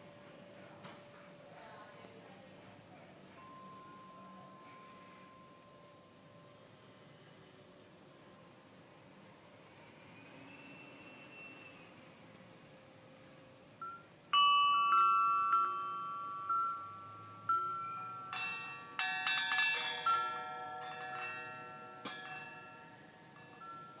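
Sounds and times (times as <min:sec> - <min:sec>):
wind bells ringing: 0:03.2 - 0:06.9, 0:13.8 - 0:24.0.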